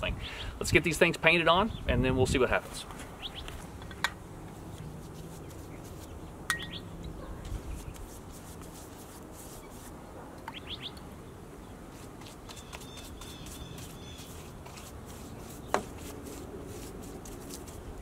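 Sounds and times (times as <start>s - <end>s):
birds chirping: 2.7s - 8.0s, 10.4s - 15.9s
paint brush swishing: 4.6s - 6.2s, 7.4s - 10.0s, 11.9s - 18.0s.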